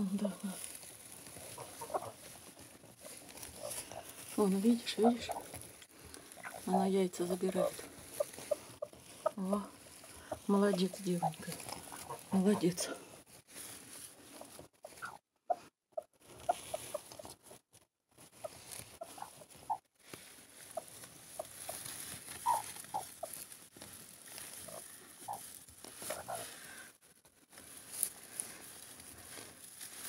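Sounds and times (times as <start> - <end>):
straw rustling: 0.0 - 30.0
hens clucking softly: 1.4 - 13.1, 14.2 - 17.4, 18.4 - 19.8, 20.6 - 23.4, 24.5 - 26.6.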